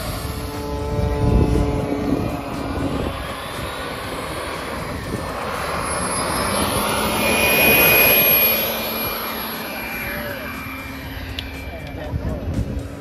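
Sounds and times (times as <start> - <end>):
high turbine whine: 0.0 - 13.0
propeller noise: 0.0 - 13.0.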